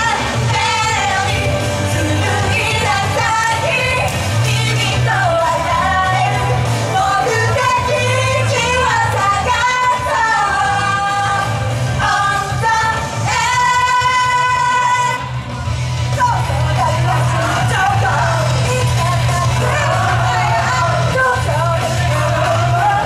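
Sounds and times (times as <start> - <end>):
women singing into microphones: 0.0 - 15.4, 16.1 - 23.0
pop backing track with bass beat: 0.0 - 23.0.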